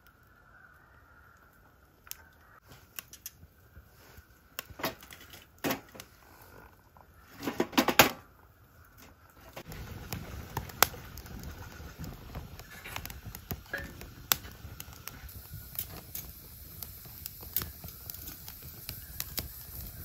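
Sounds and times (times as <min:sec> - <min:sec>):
wood fire rushing and crackling: 0:00.0 - 0:20.0
firewood clattering in metal box: 0:04.8 - 0:06.1, 0:07.4 - 0:08.3.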